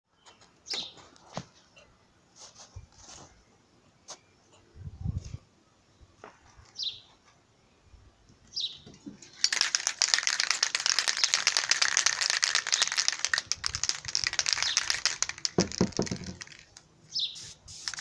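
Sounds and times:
spray can ball rattling: 0:09.2 - 0:18.0.

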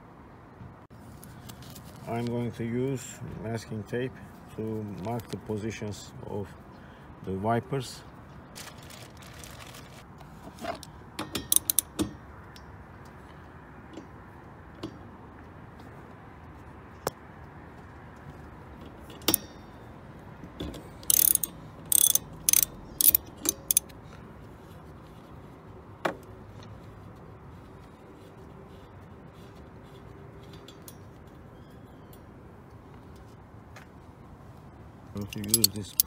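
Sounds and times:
ratchet wrench clicking: 0:11.4 - 0:12.0, 0:21.0 - 0:23.9, 0:35.2 - 0:36.0.

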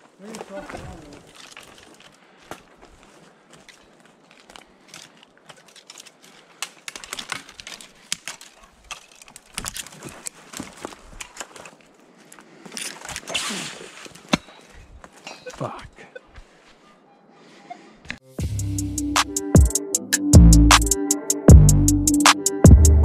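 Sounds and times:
dry leaves and twigs crunching: 0:00.0 - 0:15.7.

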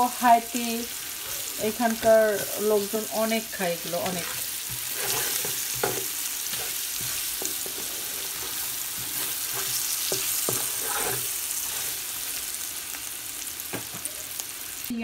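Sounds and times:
yam sizzling in oil: 0:00.0 - 0:15.0
wooden spatula scraping pan: 0:00.6 - 0:12.1.

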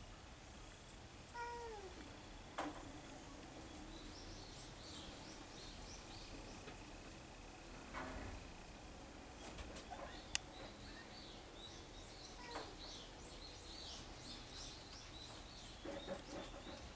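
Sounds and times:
cat meowing: 0:01.3 - 0:02.0, 0:12.4 - 0:12.8.

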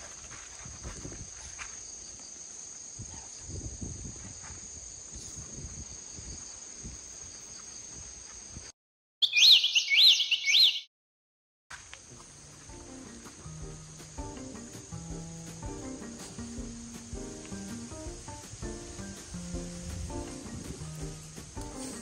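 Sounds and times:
rising chirpy whistles: 0:09.2 - 0:10.9.

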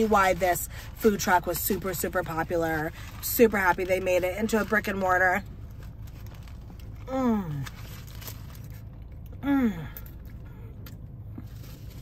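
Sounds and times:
woman moaning with mouth full: 0:09.4 - 0:10.0.

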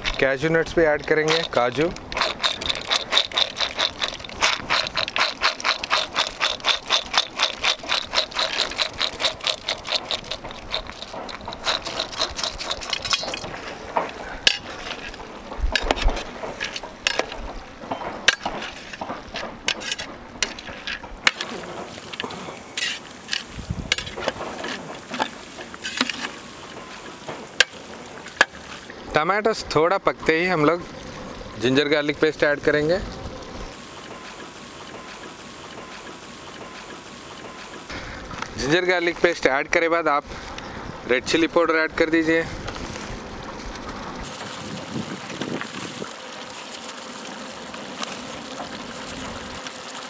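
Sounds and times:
steel utensil scraping cookware: 0:01.1 - 0:15.2, 0:19.7 - 0:21.7.

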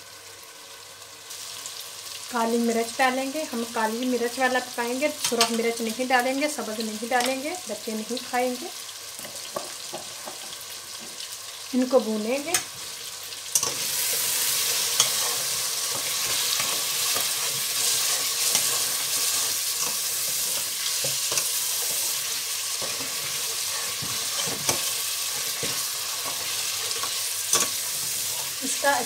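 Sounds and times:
meat sizzling in hot oil: 0:00.0 - 0:29.0
spoon scraping and clinking on pot: 0:14.8 - 0:22.2, 0:22.8 - 0:28.2.

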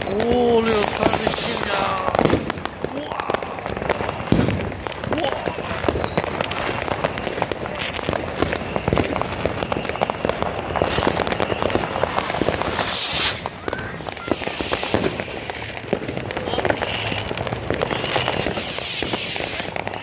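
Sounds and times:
fireworks bangs and crackles: 0:00.0 - 0:20.0
loud hiss: 0:00.6 - 0:02.0, 0:12.0 - 0:15.8, 0:18.2 - 0:19.8.

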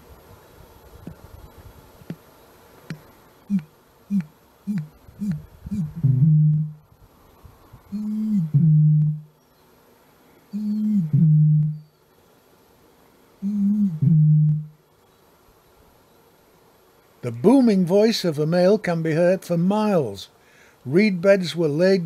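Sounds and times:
low gulps: 0:04.2 - 0:06.8.

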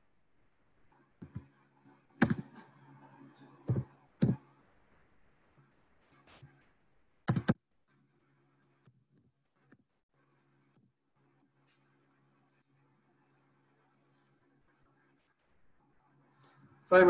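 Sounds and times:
keyboard and mouse clicks: 0:02.2 - 0:02.6, 0:03.7 - 0:04.4, 0:07.2 - 0:07.6.

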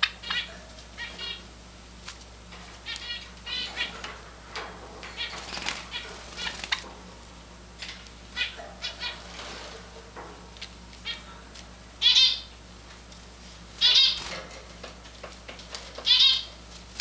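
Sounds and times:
sparrows chirping: 0:00.0 - 0:01.6, 0:02.5 - 0:07.1, 0:07.8 - 0:12.6, 0:13.8 - 0:14.5, 0:15.8 - 0:16.6
wing flutter: 0:02.0 - 0:06.9, 0:08.9 - 0:10.0.

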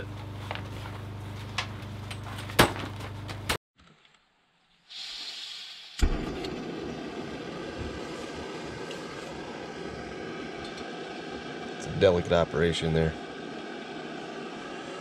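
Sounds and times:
stove burner running: 0:00.0 - 0:03.6, 0:06.0 - 0:15.0
gas stove hissing: 0:04.8 - 0:15.0
burner lighting with a pop: 0:06.0 - 0:09.5
low hum: 0:06.0 - 0:15.0.

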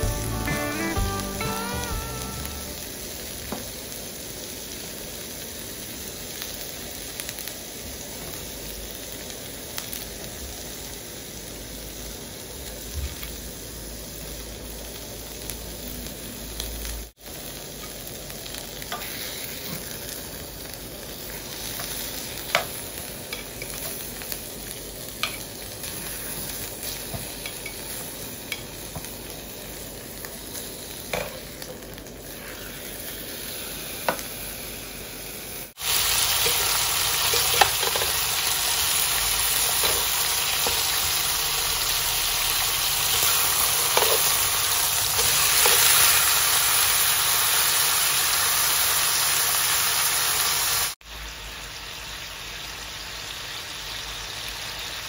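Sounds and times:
steak sizzling in grill pan: 0:00.0 - 0:55.0
metal tongs clicking on pan: 0:25.2 - 0:25.4, 0:27.4 - 0:27.9.

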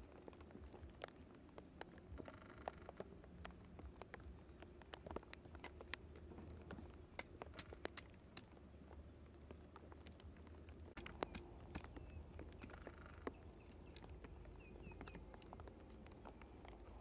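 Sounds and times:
twigs clicking and tapping: 0:00.0 - 0:17.0
faint bird chirps: 0:11.0 - 0:17.0.

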